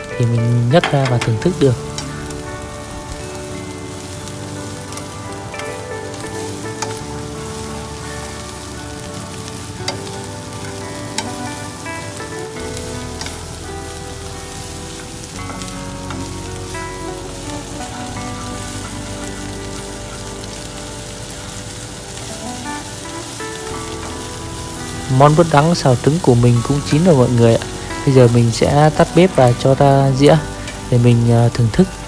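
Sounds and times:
food sizzling in a wok: 0.0s - 32.0s
chopsticks tapping a pan: 0.6s - 2.5s, 3.4s - 21.2s.

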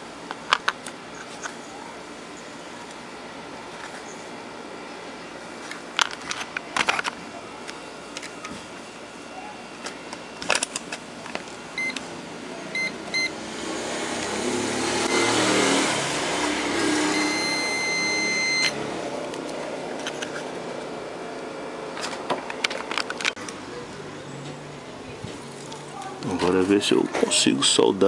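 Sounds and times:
continuity beeper beeping: 12.7s - 13.4s, 15.0s - 15.8s, 17.1s - 18.8s.

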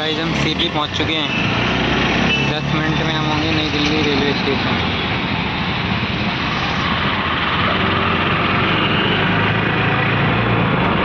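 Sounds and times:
auto-rickshaw engine running: 0.0s - 5.1s
road and traffic noise: 0.0s - 11.0s.

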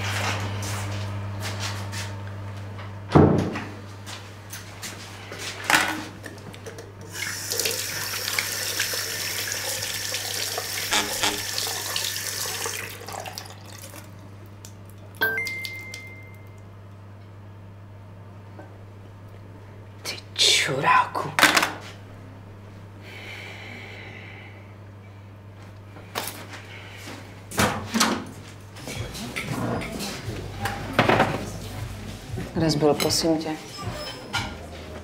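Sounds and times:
tap water running into basin: 7.0s - 14.8s
steady low hum: 13.9s - 35.0s.

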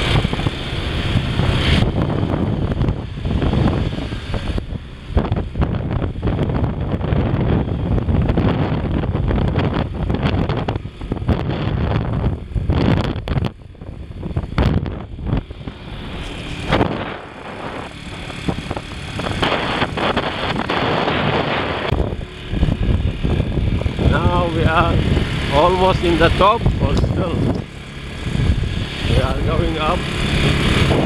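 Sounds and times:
motorcycle engine and road rumble: 0.0s - 31.0s
wind buffeting microphone: 0.0s - 31.0s.

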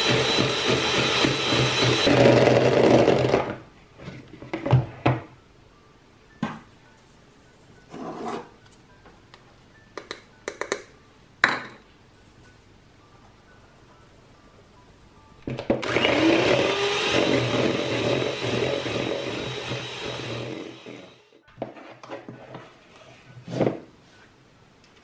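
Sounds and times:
electric hand mixer whipping: 0.0s - 3.5s, 15.7s - 21.3s.

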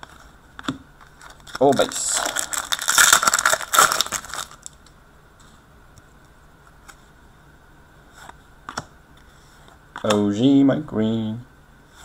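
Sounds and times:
faint steady hum: 0.0s - 12.0s
trading cards rustling: 1.0s - 4.8s.

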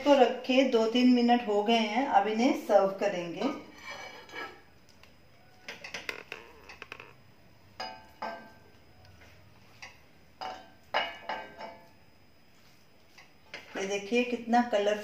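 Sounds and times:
metal spoon scraping a steel pot: 3.7s - 4.6s.

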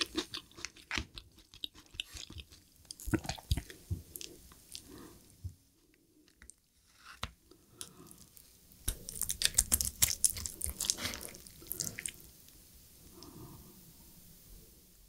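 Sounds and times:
wet sticky squelching food: 0.0s - 4.9s, 7.8s - 12.3s.

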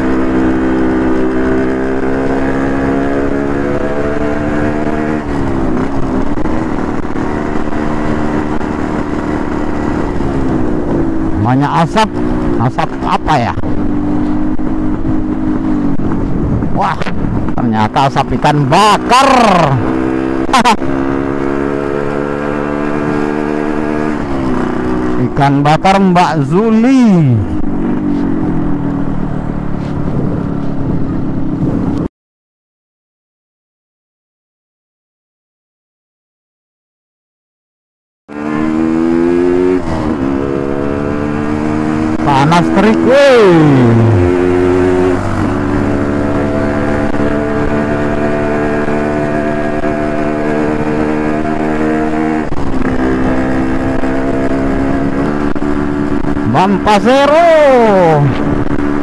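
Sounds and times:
motorcycle engine running: 0.0s - 25.9s, 26.7s - 32.0s, 38.4s - 59.0s
road and wind noise: 0.0s - 32.1s, 38.3s - 59.0s
two-stroke motorcycle engine running: 40.2s - 59.0s.

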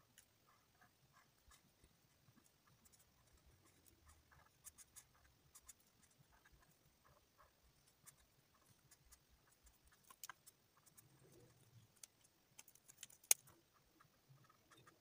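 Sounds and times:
marker scratching on paper: 0.5s - 11.6s.

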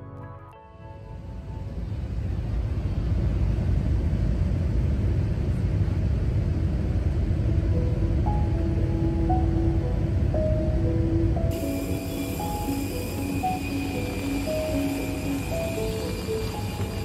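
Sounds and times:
jet cabin engine rumble: 1.0s - 17.0s
soft music notes: 7.4s - 17.0s.

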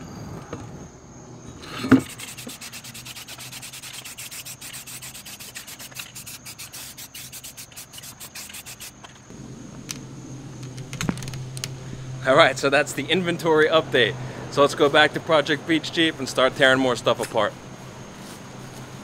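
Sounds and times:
spray paint can hissing: 2.0s - 9.1s.

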